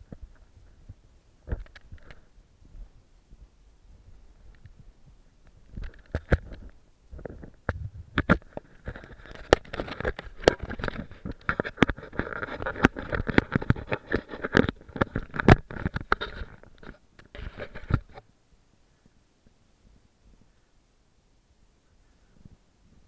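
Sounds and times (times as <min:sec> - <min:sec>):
knocks and scrapes against rock: 0:05.6 - 0:18.2.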